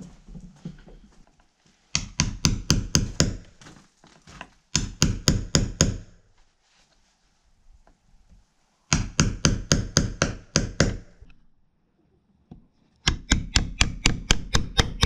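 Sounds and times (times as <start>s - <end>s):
hammer striking chisel into wood: 2.0s - 3.5s, 4.8s - 6.2s, 8.9s - 11.3s, 13.0s - 15.0s.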